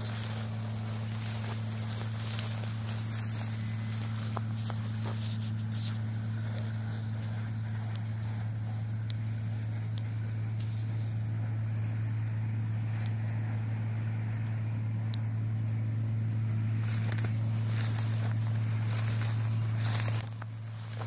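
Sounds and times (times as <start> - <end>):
dry crop stalks rustling: 0.0 - 9.0, 16.6 - 21.0
combine harvester engine drone: 0.0 - 21.0.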